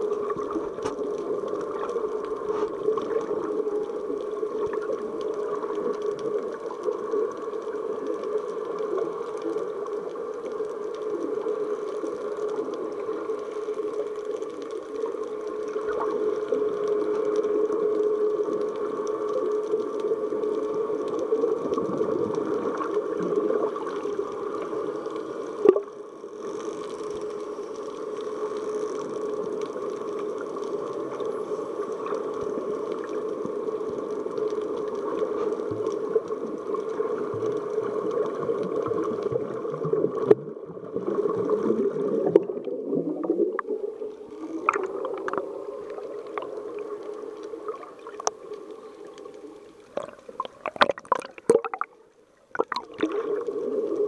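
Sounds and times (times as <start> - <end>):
muffled underwater drone: 0.0 - 54.0
sharp clicks and gurgles: 0.1 - 16.6, 41.3 - 54.0.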